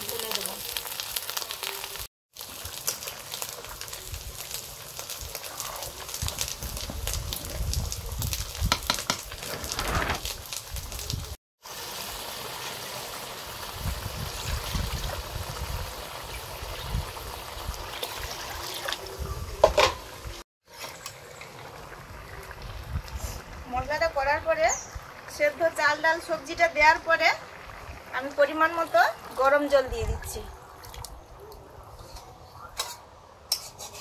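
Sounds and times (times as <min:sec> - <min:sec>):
food bubbling simmer: 0:20.1 - 0:31.8
metal spatula scraping pot: 0:32.0 - 0:34.0.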